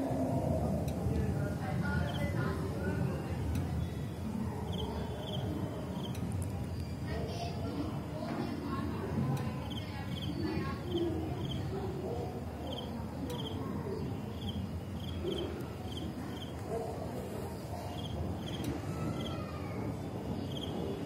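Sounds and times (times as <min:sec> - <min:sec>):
insect chirping: 0:04.7 - 0:06.2, 0:09.6 - 0:11.7, 0:12.7 - 0:16.6, 0:17.9 - 0:18.7, 0:20.5 - 0:20.7.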